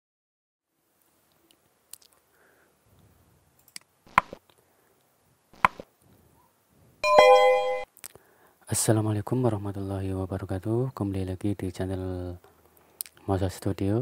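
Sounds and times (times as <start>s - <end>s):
bell-like notification chime: 7.0s - 7.9s.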